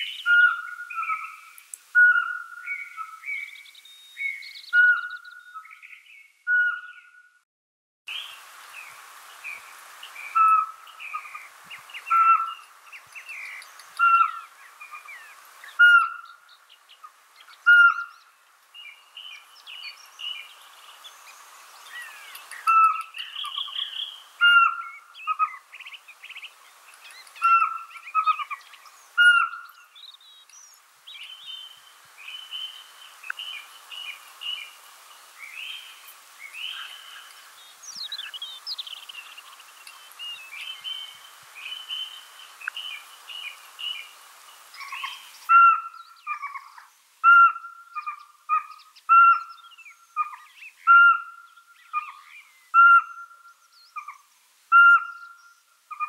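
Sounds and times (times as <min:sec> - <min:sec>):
owl whistling: 0:00.2 - 0:01.4, 0:02.0 - 0:03.2, 0:04.7 - 0:05.6, 0:06.5 - 0:07.0, 0:10.3 - 0:11.3, 0:12.1 - 0:12.6, 0:15.8 - 0:16.2, 0:17.7 - 0:18.1, 0:24.4 - 0:25.6, 0:27.4 - 0:28.4, 0:29.2 - 0:29.6, 0:45.5 - 0:49.5, 0:50.2 - 0:56.0.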